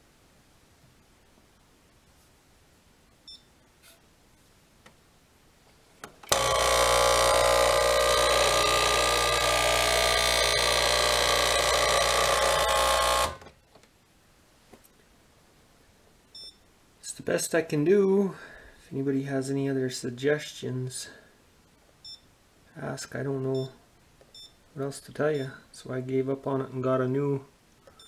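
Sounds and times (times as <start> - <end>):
espresso machine humming: 6.3 - 13.5.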